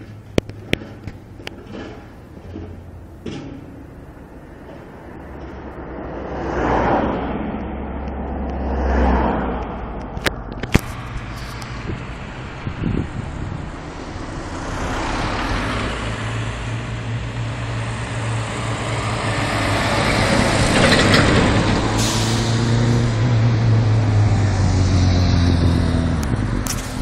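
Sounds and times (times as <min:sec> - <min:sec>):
tyre noise: 0:00.0 - 0:06.0
car passing: 0:00.0 - 0:27.0
truck diesel engine drone: 0:00.0 - 0:27.0.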